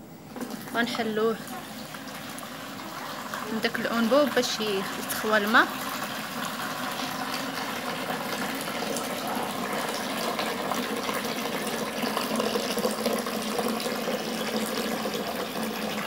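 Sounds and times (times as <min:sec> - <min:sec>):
water pouring into plastic bowl: 0:00.3 - 0:16.0.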